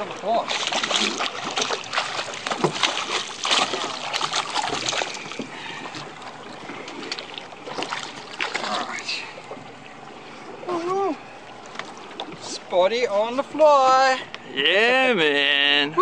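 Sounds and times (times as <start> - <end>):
fish thrashing and splashing: 0.0 - 10.8.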